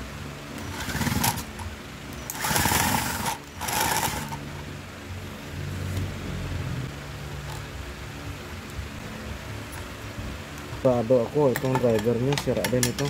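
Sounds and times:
cordless drill whirring: 0.6s - 1.5s, 2.2s - 4.4s.

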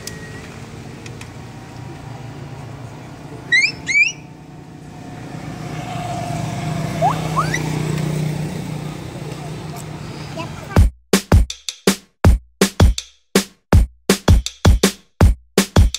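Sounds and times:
road traffic hum: 0.0s - 10.8s
vehicle engine approaching: 0.0s - 10.8s
short rising chirps: 3.5s - 4.2s.

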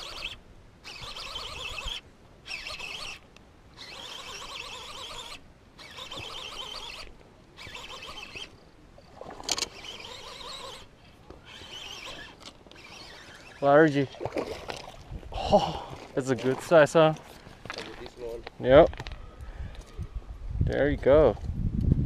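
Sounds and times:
fishing reel ratcheting whir: 0.0s - 3.2s, 3.8s - 8.6s, 9.4s - 14.0s.

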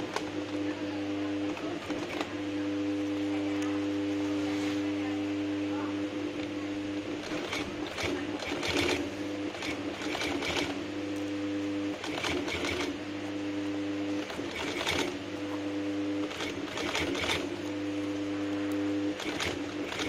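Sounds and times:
steady hum: 0.1s - 20.0s
sewing machine stitching leather: 1.4s - 2.4s, 7.1s - 10.8s, 11.9s - 13.0s, 14.1s - 18.1s, 19.0s - 20.0s.

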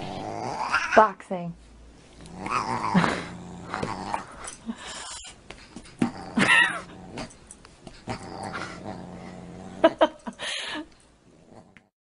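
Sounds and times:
animals growling: 0.0s - 1.0s, 2.2s - 5.2s, 6.0s - 7.4s, 8.0s - 10.1s, 11.3s - 11.9s.

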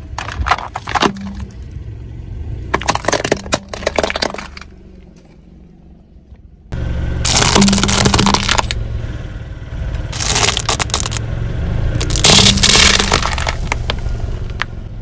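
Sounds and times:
tyre crushing brittle objects: 0.0s - 1.6s, 2.7s - 4.8s, 7.2s - 8.8s, 10.1s - 11.2s, 12.0s - 14.7s
car engine hum: 0.0s - 15.0s.

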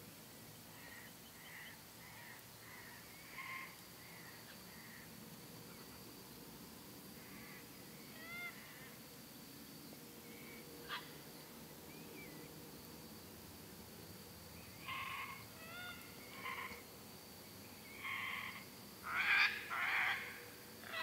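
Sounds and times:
cockatoo squawks: 14.8s - 16.8s, 18.0s - 21.0s.

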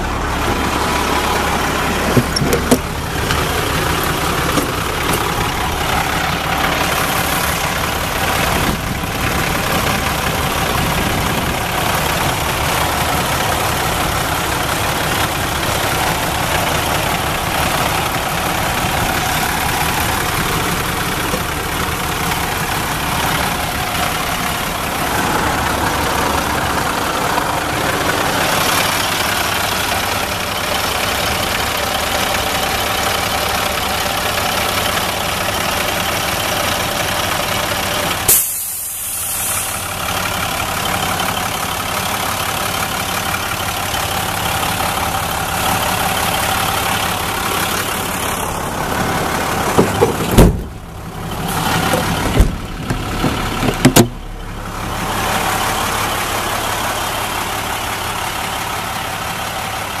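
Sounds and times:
diesel engine idling: 0.0s - 60.0s
loud knocks: 49.7s - 50.8s, 51.9s - 54.2s.

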